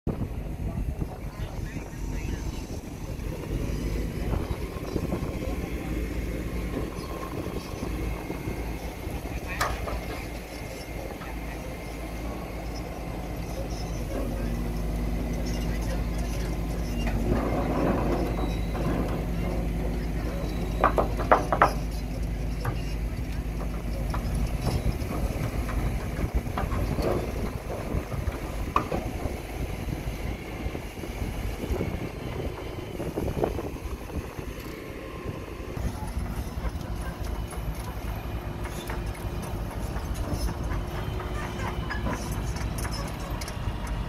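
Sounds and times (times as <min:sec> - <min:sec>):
diesel engine rumbling: 0:00.0 - 0:44.0
metallic knocks: 0:20.7 - 0:22.0.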